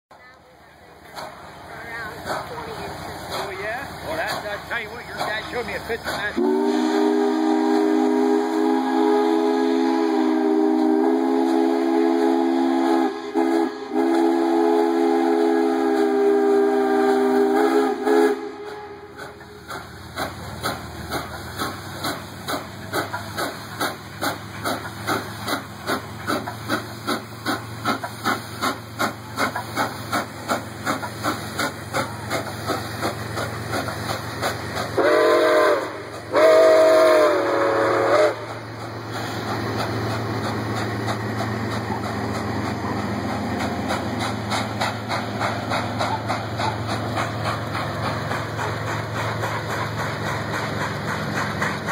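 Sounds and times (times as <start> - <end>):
steam locomotive chuffing: 0.1 - 51.9
steam locomotive whistle: 6.4 - 19.4, 34.9 - 38.6.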